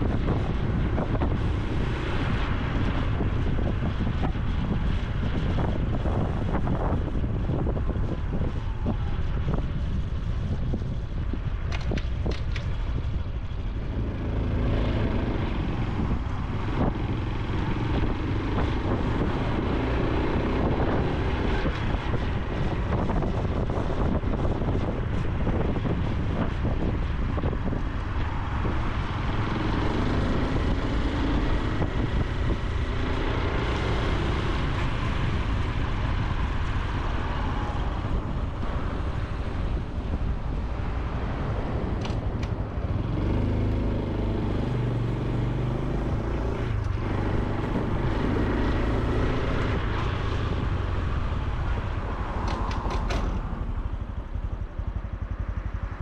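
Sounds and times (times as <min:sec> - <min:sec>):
wind on microphone: 0:00.0 - 0:56.0
motorcycle engine revving: 0:27.7 - 0:56.0.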